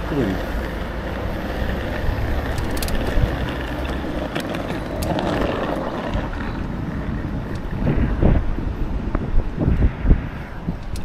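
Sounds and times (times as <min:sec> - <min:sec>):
bicycle tyre rumble on pavement: 0:00.0 - 0:11.0
wind buffeting microphone: 0:00.0 - 0:11.0
light clicks and rattles: 0:02.4 - 0:05.2.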